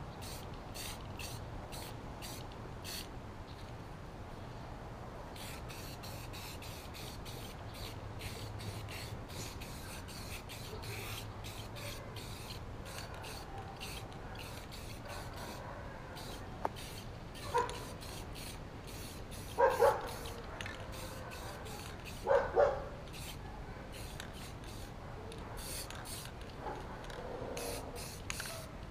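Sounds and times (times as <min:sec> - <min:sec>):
spray-paint can hissing: 0:00.2 - 0:03.1, 0:05.4 - 0:15.6, 0:16.2 - 0:22.3, 0:23.1 - 0:24.9, 0:25.6 - 0:26.4, 0:27.6 - 0:28.7.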